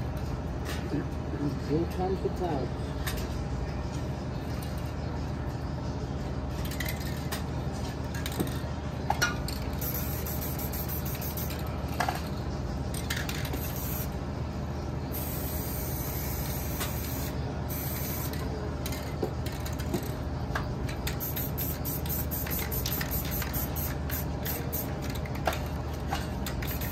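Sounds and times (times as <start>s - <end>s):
low background hum: 0.0s - 26.9s
spray paint can hissing: 9.8s - 11.6s, 13.4s - 14.2s, 15.1s - 18.4s, 21.1s - 25.2s, 26.5s - 26.9s.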